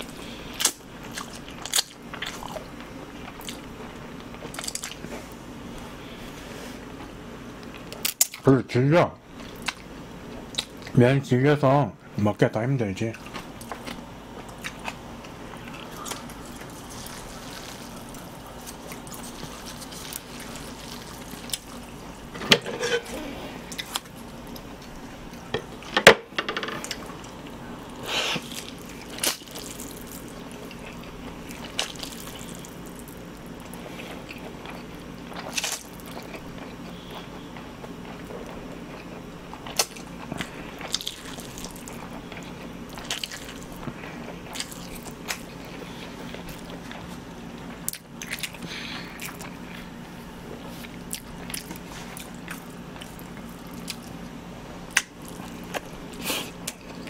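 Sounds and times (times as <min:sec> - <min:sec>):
person slurping and chewing noodles: 0:13.3 - 0:25.2, 0:26.8 - 0:47.1.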